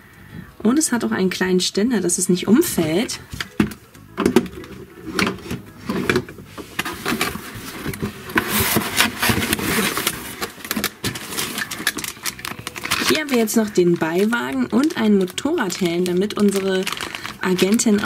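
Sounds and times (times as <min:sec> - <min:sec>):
cardboard packaging rustling: 0:02.8 - 0:18.0.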